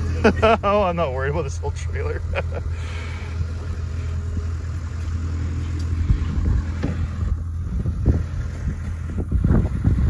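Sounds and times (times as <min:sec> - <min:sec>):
engine idling: 0:00.0 - 0:10.0
wind buffeting microphone: 0:05.5 - 0:10.0.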